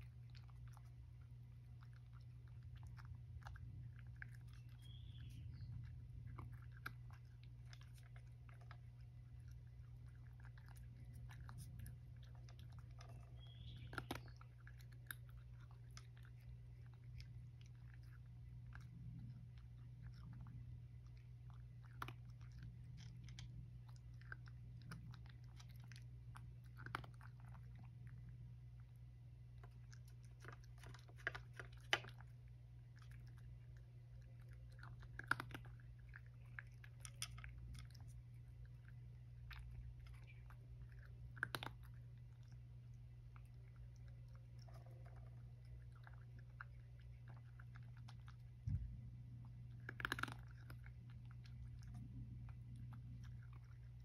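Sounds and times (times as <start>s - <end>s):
cat crunching dry kibble: 0.0s - 54.0s
steady low hum: 0.0s - 54.0s.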